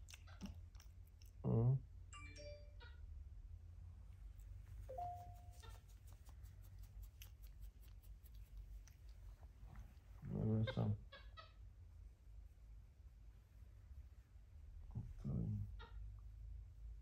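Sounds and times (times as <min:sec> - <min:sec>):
monkeys clicking and smacking: 0:05.5 - 0:09.2.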